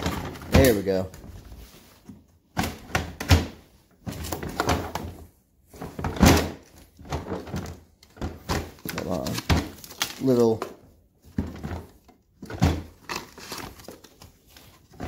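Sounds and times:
plastic tool boxes clunking together: 0.0 - 15.0.

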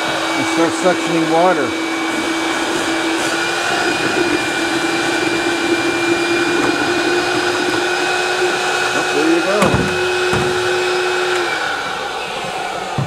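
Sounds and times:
wet vacuum sucking water: 0.0 - 13.0.

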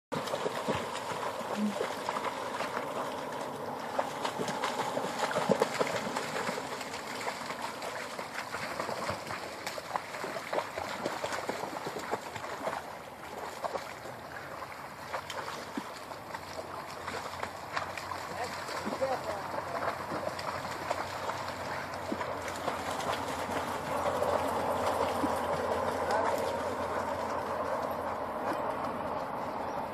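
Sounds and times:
dogs splashing through water: 0.1 - 29.9
water rushing: 0.1 - 29.9.

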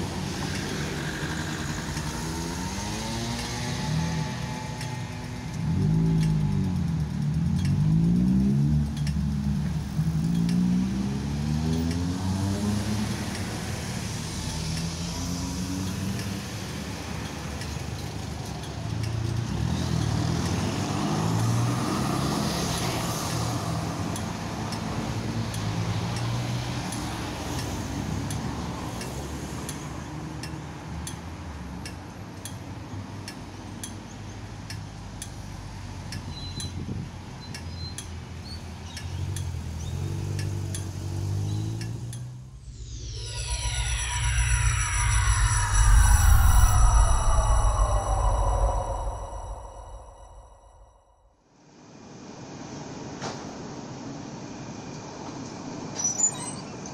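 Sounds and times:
tram rolling past: 0.0 - 10.2, 42.6 - 50.8
cars passing: 0.0 - 50.9.

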